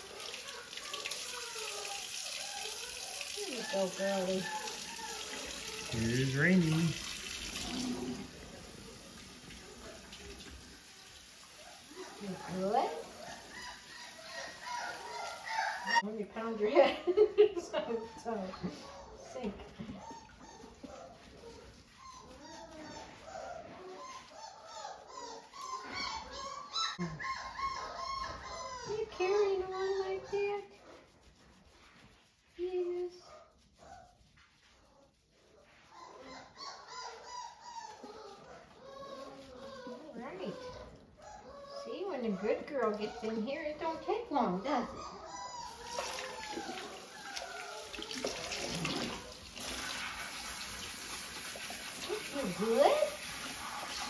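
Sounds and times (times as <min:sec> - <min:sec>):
puppy whining and whimpering: 0:00.2 - 0:06.8, 0:17.8 - 0:30.2, 0:35.9 - 0:49.4
water splashing into sink: 0:06.6 - 0:08.4, 0:45.8 - 0:54.0.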